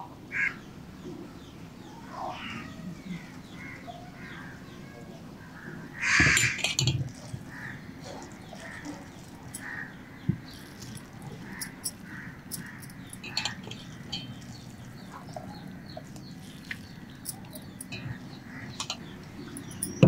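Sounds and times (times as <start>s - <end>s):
birds calling: 0.0s - 20.0s
light clicks and taps in glass bowl: 10.3s - 15.5s.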